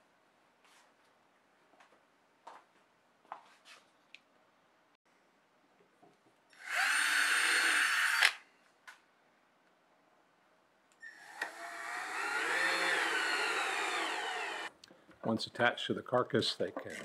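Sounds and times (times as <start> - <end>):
cordless drill boring: 6.6 - 8.4, 11.0 - 14.7
drill driving a screw: 6.6 - 8.4, 11.0 - 14.7
drill stopping click: 11.1 - 14.7.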